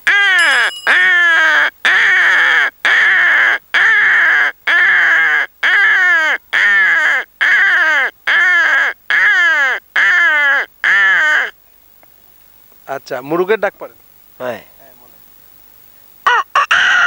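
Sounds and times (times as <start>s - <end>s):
man imitating crow caws: 0.0s - 11.6s, 16.3s - 17.0s.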